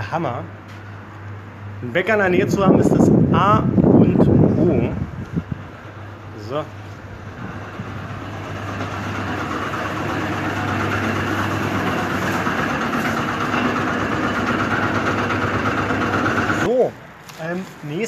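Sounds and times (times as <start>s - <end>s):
whooshing machine noise: 5.4s - 16.7s.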